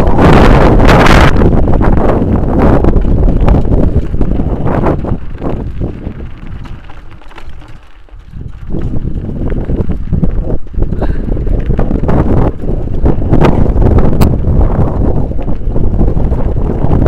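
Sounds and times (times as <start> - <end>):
bike rattling and knocking: 0.0 - 17.0
wind buffeting microphone: 0.0 - 17.0.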